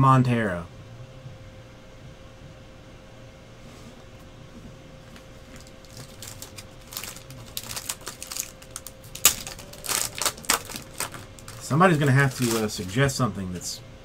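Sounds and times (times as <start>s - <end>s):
card pack wrapper crinkling: 5.4s - 13.2s.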